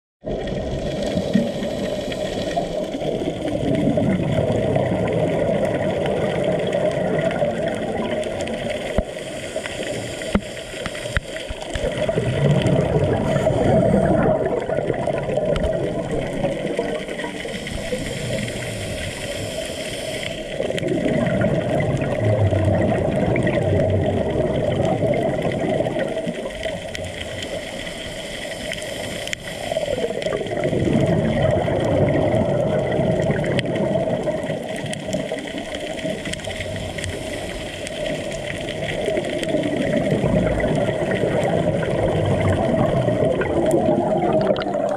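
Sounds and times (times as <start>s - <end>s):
exhaust bubbles rumbling: 0.2s - 9.1s, 11.7s - 19.5s, 20.6s - 27.5s, 29.7s - 44.9s
regulator hiss on inhale: 0.8s - 3.1s, 8.8s - 11.9s, 17.0s - 20.7s, 26.3s - 30.5s, 36.5s - 38.6s.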